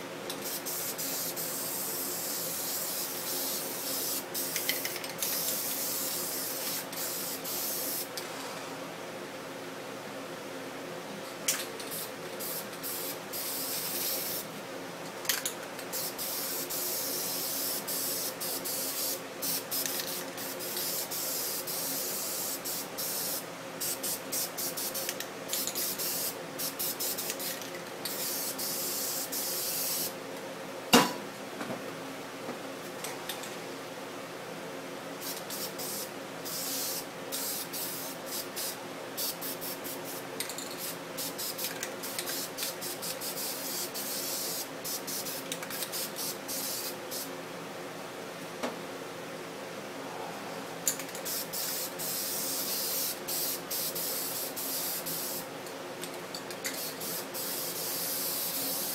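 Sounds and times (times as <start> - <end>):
spray paint can hissing: 0.4 - 8.1, 11.9 - 14.5, 15.9 - 27.5, 28.1 - 30.1, 35.2 - 40.2, 40.8 - 47.3, 51.1 - 55.4, 56.7 - 58.9.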